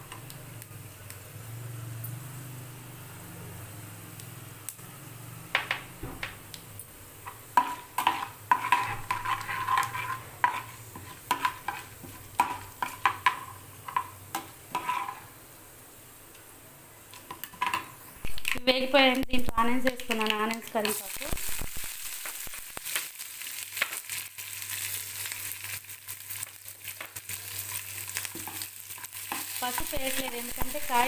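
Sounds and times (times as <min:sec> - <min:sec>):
sizzling in hot oil: 0:00.0 - 0:31.0
ladle scraping frying pan: 0:07.6 - 0:13.1, 0:14.7 - 0:15.3.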